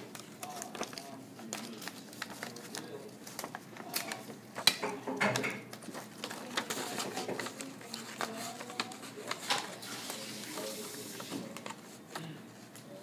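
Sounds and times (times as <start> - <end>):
paper rustling and crinkling: 0.0 - 13.0.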